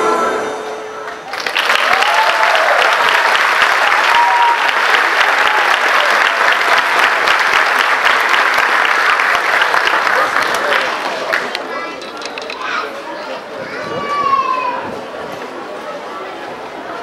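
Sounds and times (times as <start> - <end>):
audience applauding: 1.0 - 11.7
drawn-out cheers: 1.3 - 7.1.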